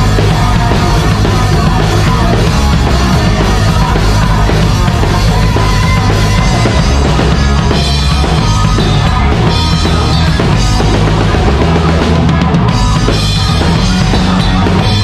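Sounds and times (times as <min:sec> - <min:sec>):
drums and cymbals struck hard: 0:00.0 - 0:15.0
heavy metal band playing: 0:00.0 - 0:15.0.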